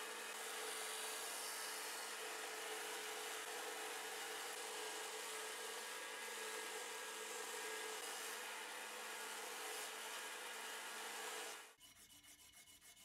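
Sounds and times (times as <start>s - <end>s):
electric power tool running: 0.0s - 11.7s.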